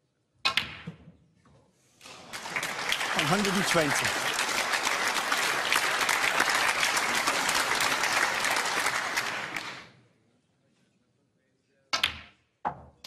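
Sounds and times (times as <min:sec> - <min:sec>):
audience applauding: 0:02.0 - 0:09.9.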